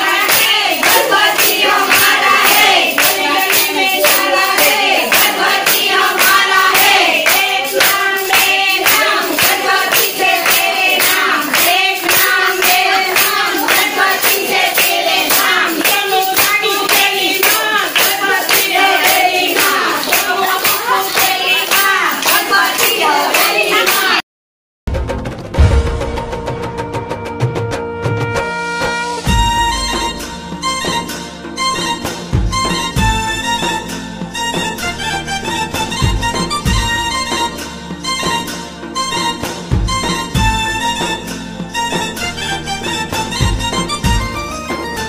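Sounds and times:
group of people singing: 0.0 - 24.2
rhythmic hand clapping: 0.0 - 24.2, 29.3 - 45.0.

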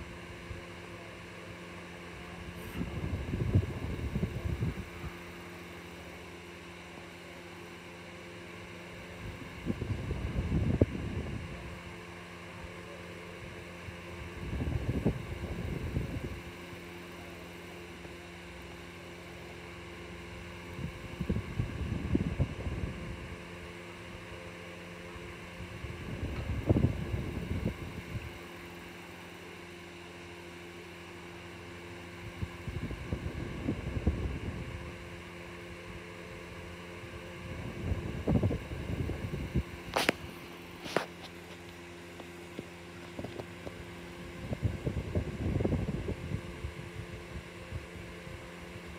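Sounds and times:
room hum: 0.0 - 48.9
air rumbling on microphone: 2.4 - 5.5, 25.6 - 28.4, 37.0 - 41.6, 42.3 - 48.5.

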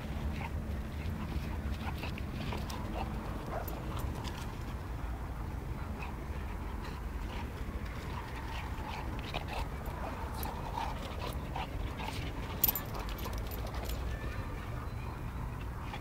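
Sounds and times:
puppies play-fighting: 0.0 - 16.0.

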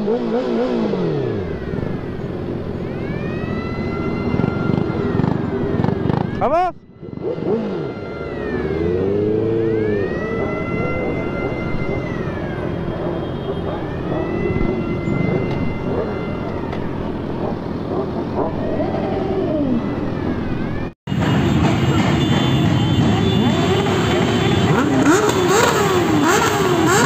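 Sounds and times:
motorcycle engines running: 0.0 - 27.0
high siren-like wail: 0.6 - 21.4.

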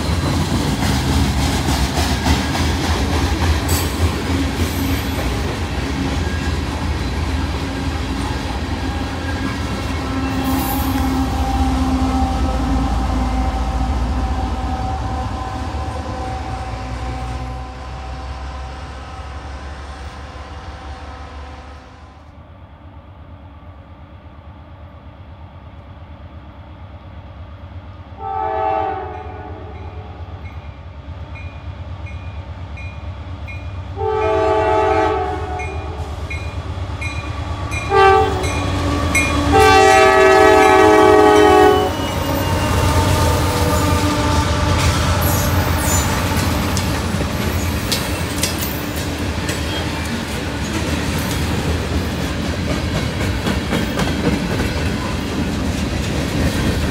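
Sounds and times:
rail noise: 0.0 - 56.9
train chime air horn: 9.8 - 22.2, 28.2 - 30.2, 34.0 - 36.4, 37.7 - 46.8.

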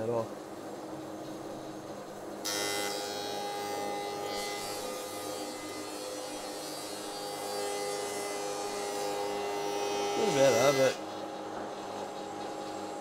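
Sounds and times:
planer cutting wood: 2.4 - 11.0.

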